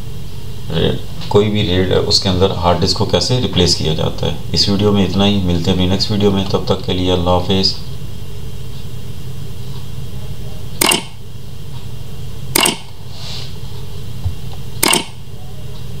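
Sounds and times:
steady low hum: 0:00.0 - 0:16.0
mouse clicks: 0:14.8 - 0:15.1.

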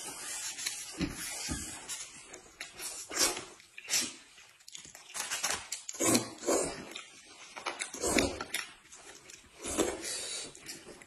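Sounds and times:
people chewing: 0:00.0 - 0:11.0
people slurping noodles: 0:05.9 - 0:07.1, 0:07.8 - 0:08.7.

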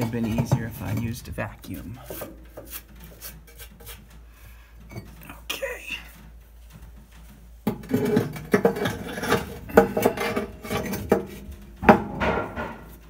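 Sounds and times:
brick scraping against metal: 0:00.0 - 0:04.2, 0:07.2 - 0:13.0
brick knocking against metal: 0:07.7 - 0:13.0.

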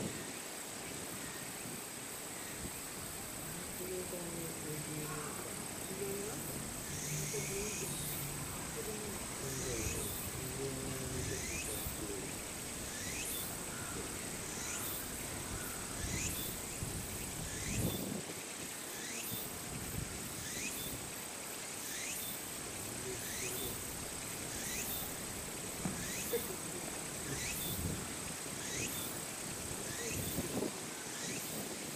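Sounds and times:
insects trilling: 0:00.0 - 0:31.9
insect sweeping chirp: 0:02.4 - 0:31.7
brief low thump: 0:25.8 - 0:26.1.

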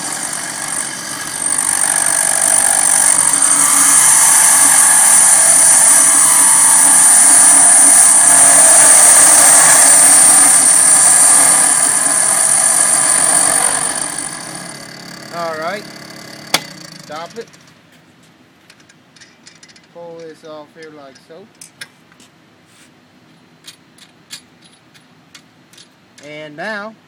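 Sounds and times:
electric motor running: 0:00.0 - 0:17.3.

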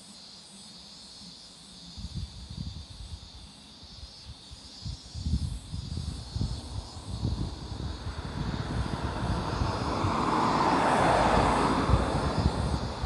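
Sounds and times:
wind on microphone: 0:01.9 - 0:13.0
aircraft engine drone: 0:05.9 - 0:13.0.

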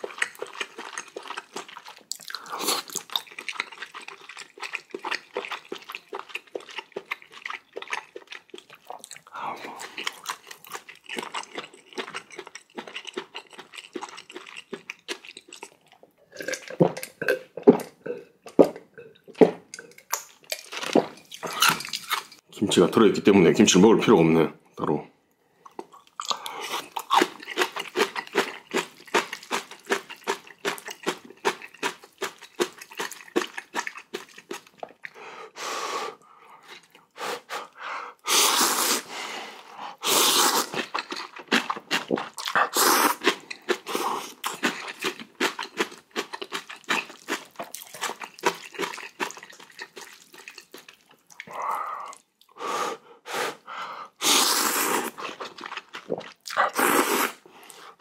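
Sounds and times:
noodle slurps: 0:00.0 - 0:10.4, 0:36.0 - 0:45.6, 0:53.3 - 0:58.0
wet chewing and smacking: 0:00.0 - 0:22.4, 0:25.6 - 0:35.2, 0:36.6 - 0:37.2, 0:40.3 - 0:52.6, 0:55.0 - 0:57.9.

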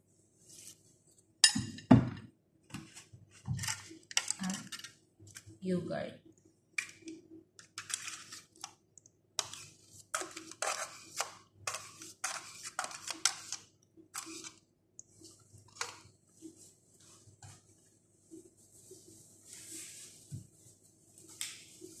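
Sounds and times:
spoon scraping plastic tub: 0:02.8 - 0:05.4, 0:06.8 - 0:08.8, 0:09.4 - 0:17.8.

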